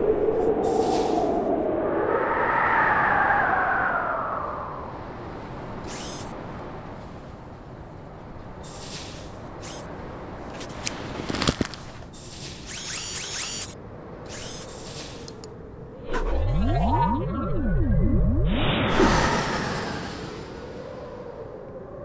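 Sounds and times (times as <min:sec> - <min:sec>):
wind-like hiss: 0:00.0 - 0:01.8, 0:08.5 - 0:12.8, 0:13.8 - 0:16.0, 0:18.9 - 0:22.0
synth music: 0:16.0 - 0:19.9.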